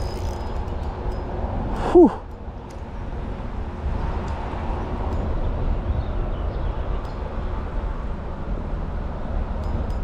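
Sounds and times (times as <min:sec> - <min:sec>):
man grunting: 0:01.8 - 0:02.2.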